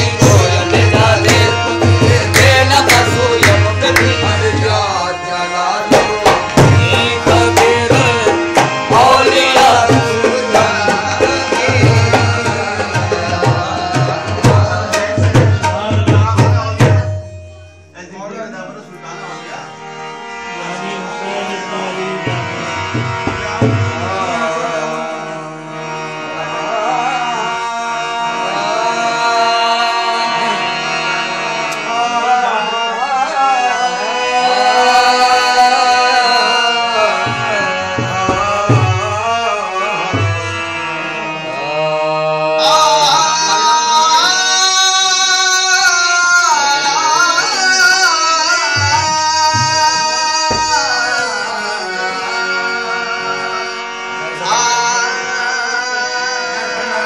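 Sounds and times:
man singing: 0:00.0 - 0:17.3, 0:20.6 - 0:57.0
harmonium sustained notes: 0:00.0 - 0:57.0.

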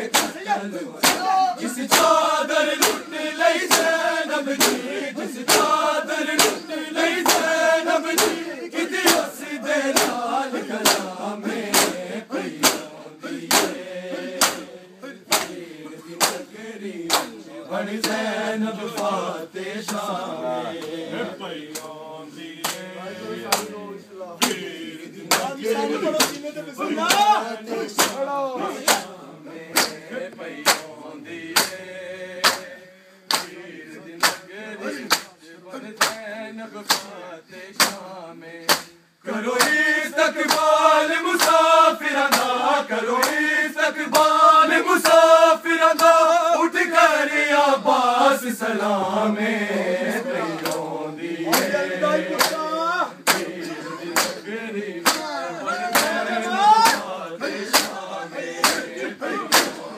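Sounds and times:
hands slapping chests: 0:00.0 - 0:00.4, 0:01.0 - 0:01.3, 0:01.9 - 0:03.1, 0:03.7 - 0:04.9, 0:05.5 - 0:09.3, 0:09.9 - 0:10.2, 0:10.8 - 0:14.7, 0:15.3 - 0:15.6, 0:16.2 - 0:16.5, 0:17.1 - 0:17.4, 0:22.6 - 0:22.9, 0:25.2 - 0:25.5, 0:27.9 - 0:28.2, 0:28.8 - 0:29.1, 0:29.7 - 0:30.9, 0:31.6 - 0:31.8, 0:32.4 - 0:32.7, 0:33.3 - 0:33.6, 0:34.2 - 0:35.3, 0:37.8 - 0:38.0, 0:38.6 - 0:39.0, 0:39.6 - 0:39.8, 0:40.4 - 0:40.8, 0:41.4 - 0:41.7, 0:42.3 - 0:42.6, 0:43.2 - 0:43.5, 0:45.0 - 0:45.2, 0:45.9 - 0:46.2, 0:50.5 - 0:50.9, 0:51.5 - 0:51.8, 0:52.4 - 0:52.6, 0:53.2 - 0:53.5, 0:54.1 - 0:54.4, 0:55.0 - 0:55.3, 0:55.9 - 0:56.2, 0:56.8 - 0:57.1, 0:57.7 - 0:58.0, 0:58.6 - 0:59.9
men chanting in unison: 0:00.0 - 0:59.9.

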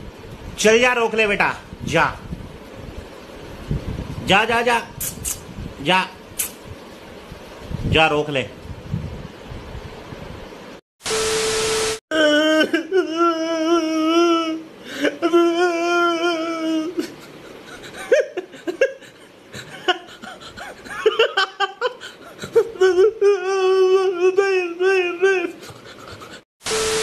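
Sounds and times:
hiss with steady beep: 0:11.0 - 0:12.0, 0:26.6 - 0:27.0
man wailing and sobbing: 0:12.1 - 0:26.4.

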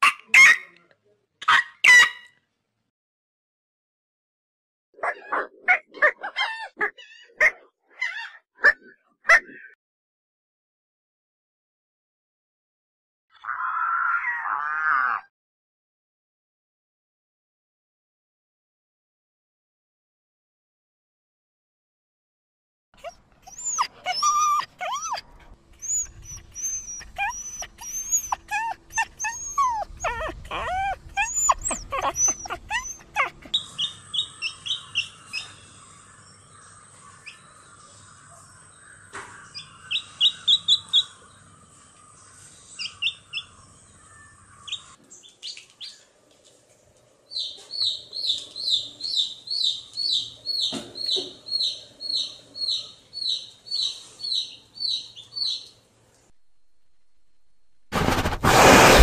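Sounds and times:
puppies whimpering and yipping: 0:23.0 - 0:35.4
chick peeping: 0:47.3 - 0:55.7.

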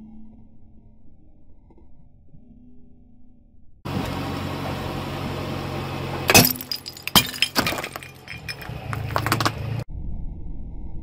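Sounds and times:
ceramic figurine shattering: 0:06.3 - 0:09.5
shards clinking: 0:06.3 - 0:09.6.

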